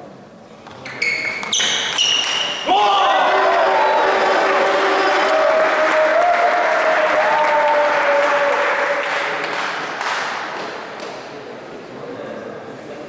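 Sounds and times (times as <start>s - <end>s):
long held shouts: 2.6s - 9.0s
spectators applauding and cheering: 2.7s - 10.8s.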